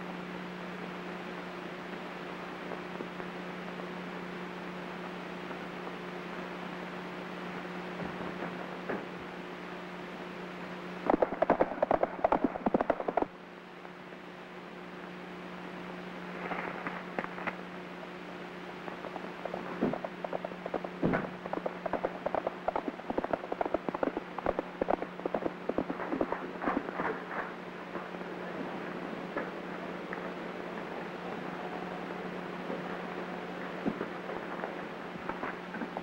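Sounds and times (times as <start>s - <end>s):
low hum: 0.0s - 36.0s
clattering knocks and clicks: 19.0s - 27.6s.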